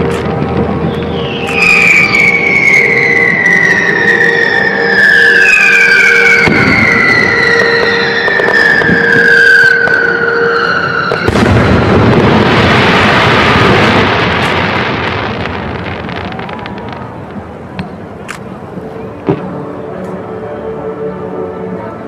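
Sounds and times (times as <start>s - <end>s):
firework whistle: 0.0s - 17.1s
firework crackling: 0.0s - 18.3s
firework bang: 10.7s - 17.9s.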